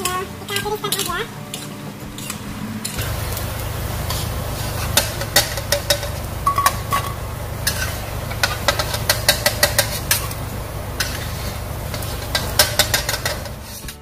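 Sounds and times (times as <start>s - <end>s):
metal spatula scraping wok: 0.0s - 14.0s
steady low hum: 0.0s - 14.0s.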